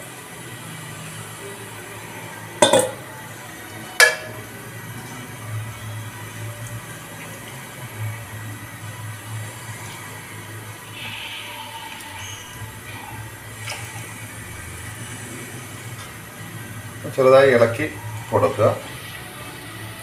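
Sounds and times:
water boiling in a pot: 0:00.0 - 0:20.0
sharp ringing clanks: 0:02.6 - 0:03.1.

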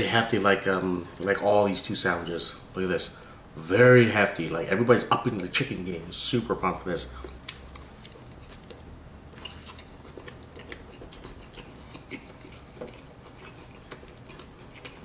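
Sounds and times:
person chewing crunchy food: 0:07.1 - 0:15.0
wet mouth clicks: 0:07.2 - 0:08.8, 0:09.4 - 0:15.0.

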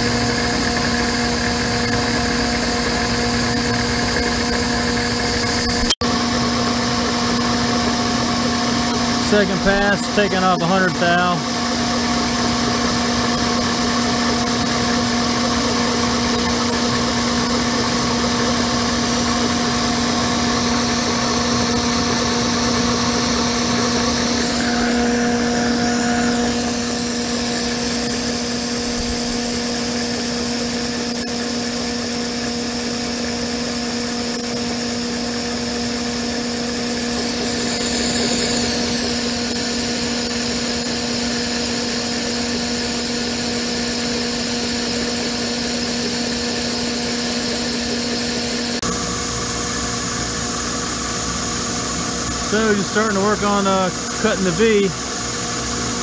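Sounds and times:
end mill cutting metal: 0:00.0 - 0:31.8
milling machine hum: 0:00.0 - 0:56.0.

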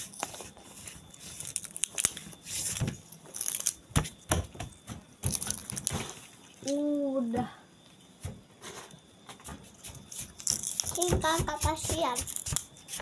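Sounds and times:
monkey tearing crumbly piece: 0:01.2 - 0:03.8.

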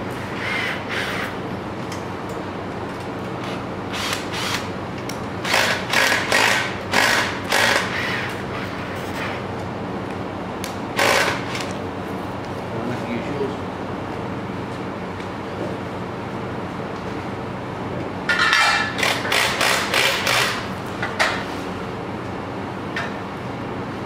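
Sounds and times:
steady low hum: 0:00.0 - 0:24.0
cordless drill driving screws: 0:11.0 - 0:11.4.

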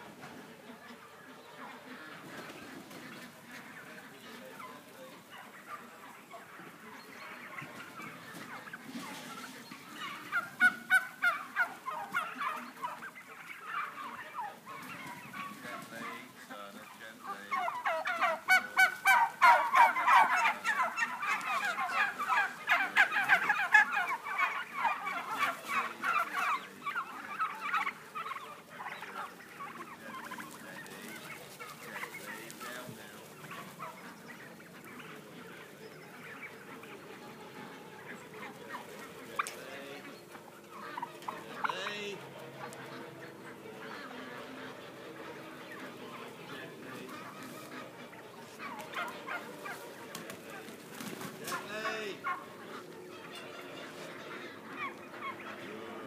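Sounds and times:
flock of turkeys calling: 0:00.0 - 0:56.0.

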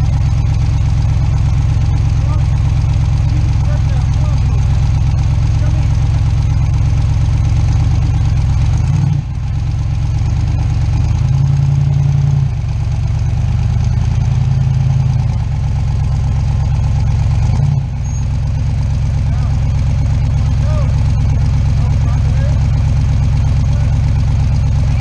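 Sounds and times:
engine revving under load: 0:08.7 - 0:09.4.

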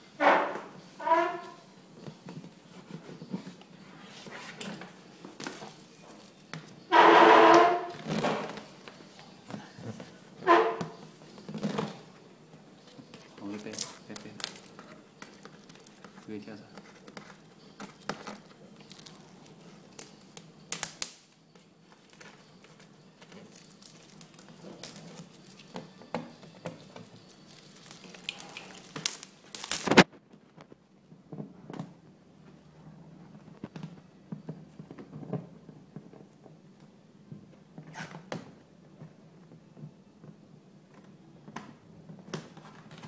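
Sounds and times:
plastic film crinkling: 0:12.8 - 0:30.8.

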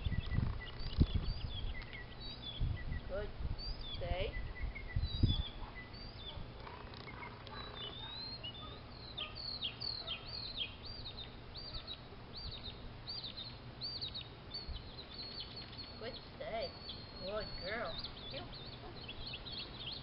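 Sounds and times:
low outdoor background noise: 0:00.0 - 0:20.0
songbird chirping: 0:00.0 - 0:20.0.

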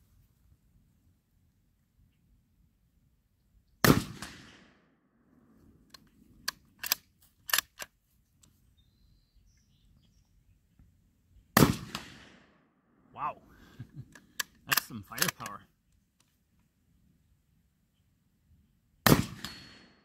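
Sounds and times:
rifle shot with echo: 0:03.8 - 0:04.9, 0:11.6 - 0:12.7, 0:19.0 - 0:20.0
rifle bolt clicks: 0:05.9 - 0:08.0, 0:14.1 - 0:15.6.

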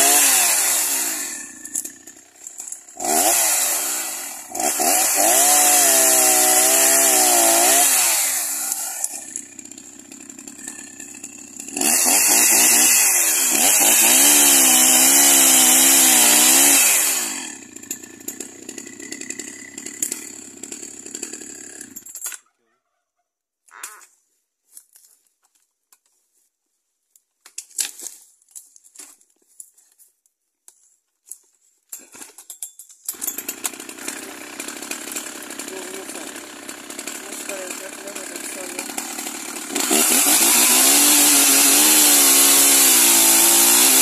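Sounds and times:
chainsaw idling: 0:00.0 - 0:22.1, 0:33.1 - 0:44.0
chainsaw cutting log: 0:00.0 - 0:22.3, 0:33.1 - 0:44.0.

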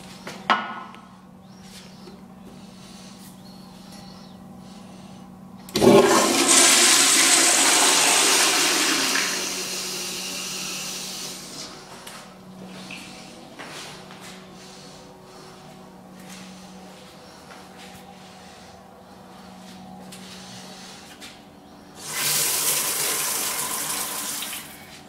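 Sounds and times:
toilet flushing: 0:05.7 - 0:11.6, 0:22.0 - 0:24.8.

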